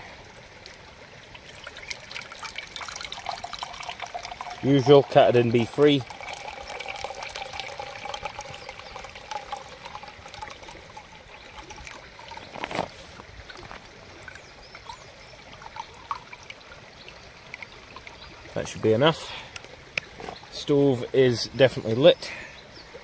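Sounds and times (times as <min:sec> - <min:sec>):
water pouring into metal pot: 0:01.3 - 0:18.9.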